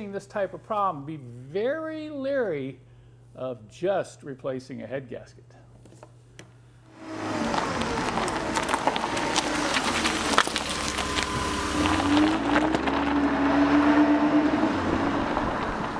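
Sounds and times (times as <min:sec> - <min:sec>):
vehicle engine running: 0:06.9 - 0:15.9.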